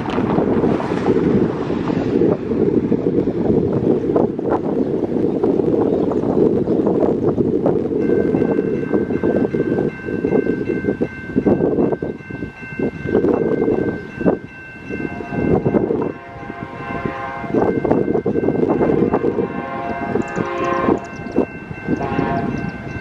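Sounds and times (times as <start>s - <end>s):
wind rumbling on microphone: 0.0s - 23.0s
train horn blast: 16.1s - 17.7s, 18.9s - 21.2s, 22.0s - 22.7s.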